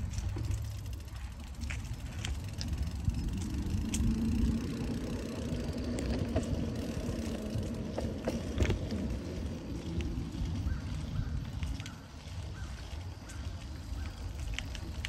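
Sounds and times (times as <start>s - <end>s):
sharp clicks and ticks: 0.0s - 9.2s
bicycle tyres rumbling: 0.0s - 15.0s
wind on microphone: 0.0s - 15.0s.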